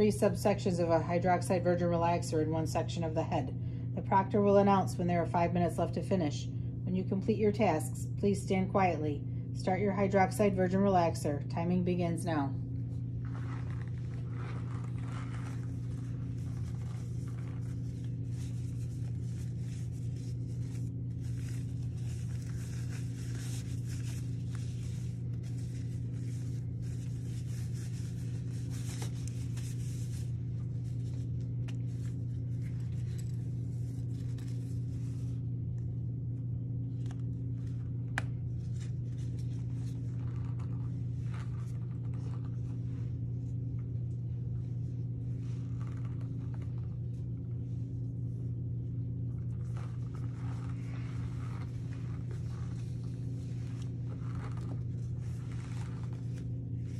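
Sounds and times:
plastic gloves rustling: 0:12.6 - 0:56.9.

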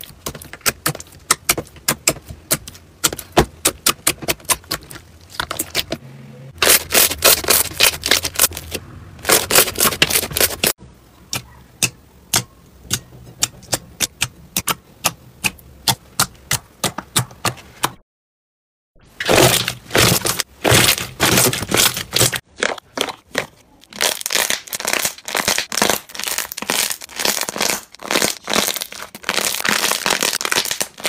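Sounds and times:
slime squishing and popping: 0:00.0 - 0:06.0, 0:19.2 - 0:31.0.

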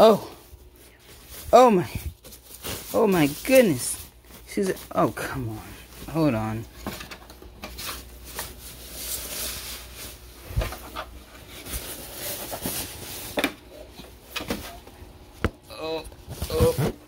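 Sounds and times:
packaging rustling: 0:00.5 - 0:13.4.

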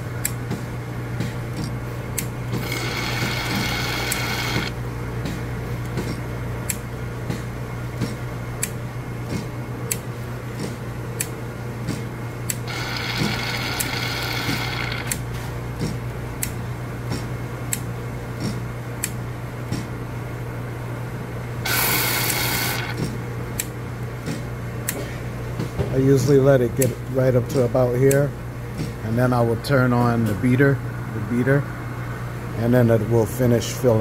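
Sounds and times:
machine hum: 0:01.5 - 0:06.2, 0:12.2 - 0:15.4, 0:21.3 - 0:23.7
regular clicks: 0:01.6 - 0:04.7, 0:12.5 - 0:15.2, 0:21.7 - 0:23.7
air hissing: 0:21.7 - 0:23.0.

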